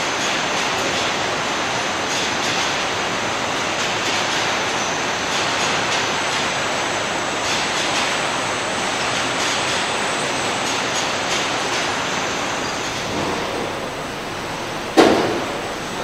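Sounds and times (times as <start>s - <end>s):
machinery roar: 8.4s - 16.0s.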